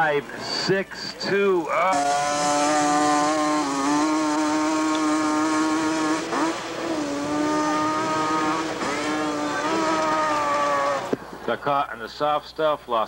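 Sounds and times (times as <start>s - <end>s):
atv engine revving hard: 1.9s - 11.2s.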